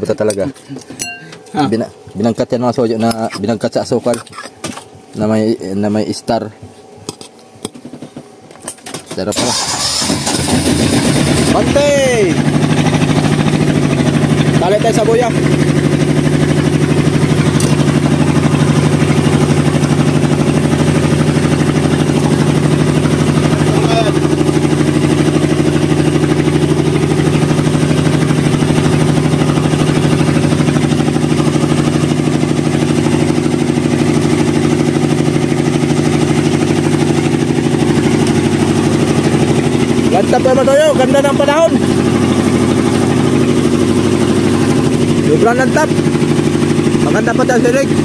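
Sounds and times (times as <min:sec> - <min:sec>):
boat engine humming: 0:09.6 - 0:48.0.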